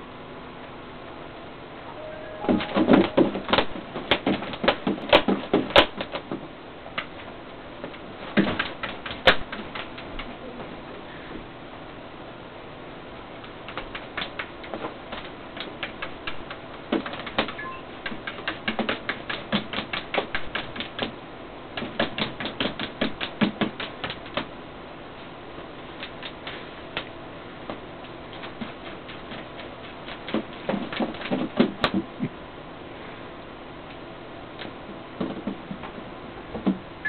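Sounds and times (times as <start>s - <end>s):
rapid sharp clicks and taps: 2.8s - 10.4s, 13.4s - 24.6s, 25.9s - 32.4s, 34.6s - 36.8s.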